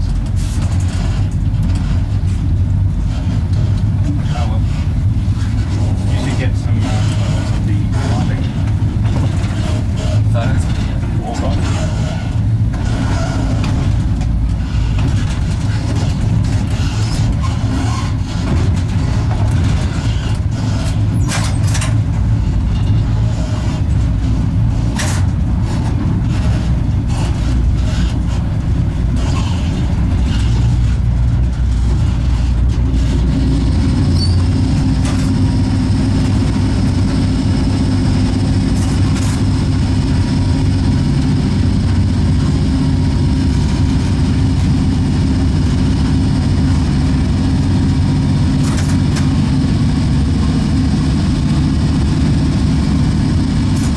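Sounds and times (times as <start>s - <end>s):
sharp clicks and knocks: 0.0s - 4.2s, 8.4s - 40.4s, 48.5s - 49.6s
locomotive low rumble: 0.0s - 53.9s.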